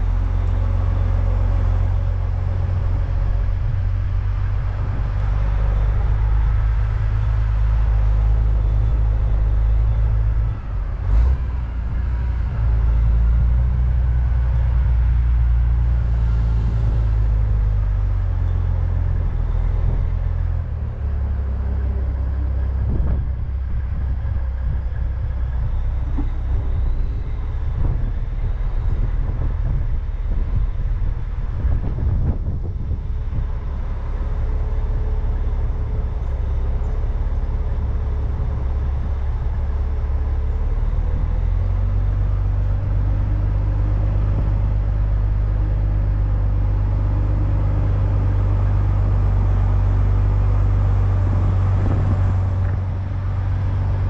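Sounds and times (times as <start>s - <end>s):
diesel truck engine rumbling: 0.0s - 54.0s
truck clunk: 16.3s - 40.2s.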